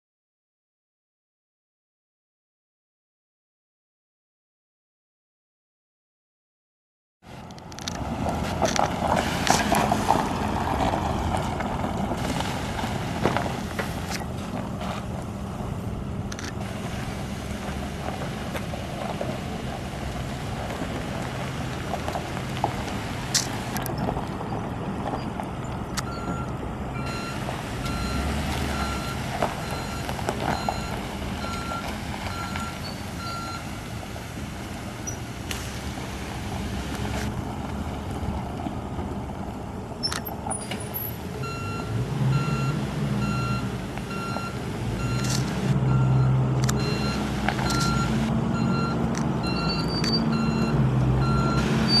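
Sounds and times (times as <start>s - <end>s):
pickup engine running: 7.3s - 52.0s
tyres on gravel: 7.3s - 52.0s
backup alarm beeping: 26.1s - 33.6s, 41.4s - 52.0s.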